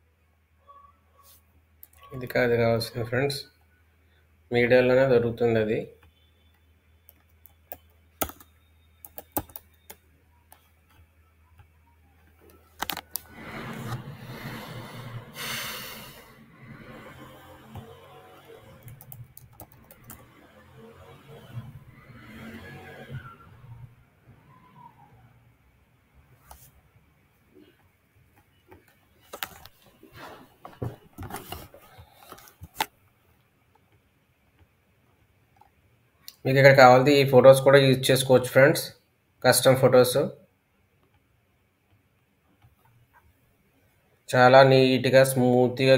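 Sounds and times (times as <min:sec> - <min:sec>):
keyboard typing: 0:06.0 - 0:23.4
computer mouse clicking and scrolling: 0:06.0 - 0:23.8, 0:26.4 - 0:26.7, 0:27.6 - 0:29.9, 0:31.2 - 0:33.0
steady rustling noise: 0:10.4 - 0:24.5, 0:26.2 - 0:35.8.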